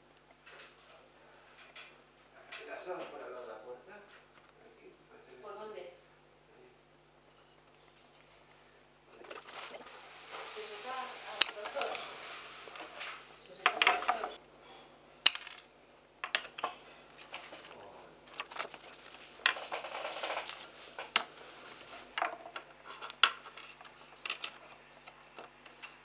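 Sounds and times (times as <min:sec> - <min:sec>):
scraping: 0:09.2 - 0:14.4
wooden pieces clattering on table: 0:11.4 - 0:14.4, 0:16.2 - 0:21.3, 0:22.1 - 0:24.7.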